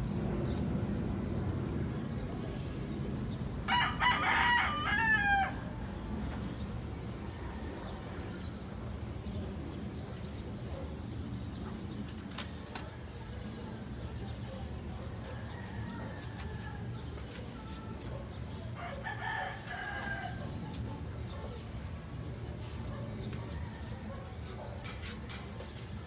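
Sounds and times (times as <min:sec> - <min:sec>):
rooster crowing: 0:03.7 - 0:05.7, 0:18.8 - 0:20.6.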